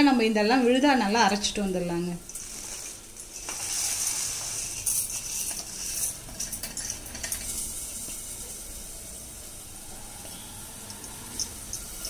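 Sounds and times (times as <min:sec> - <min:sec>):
onions sizzling in a pan: 0:00.0 - 0:12.0.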